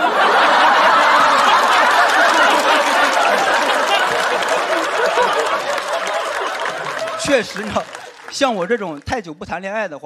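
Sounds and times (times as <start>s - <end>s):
audience laughing: 0.0s - 9.0s
audience applauding: 0.0s - 9.3s.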